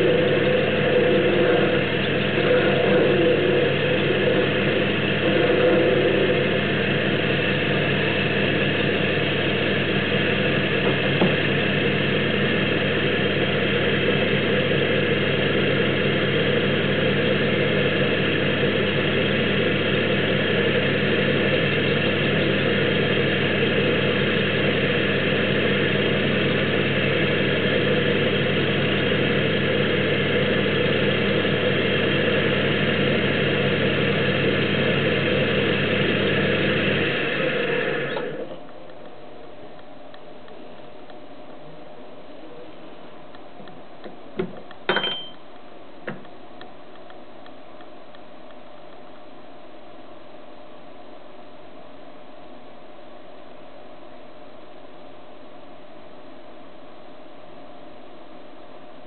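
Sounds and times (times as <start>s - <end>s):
lathe motor humming: 0.0s - 38.7s.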